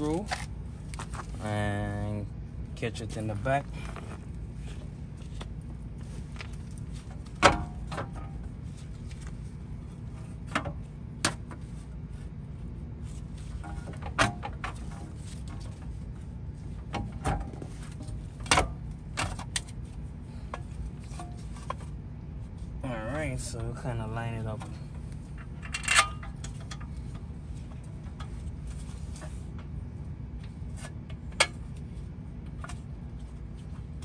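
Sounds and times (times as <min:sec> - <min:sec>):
low background hum: 0:00.0 - 0:34.0.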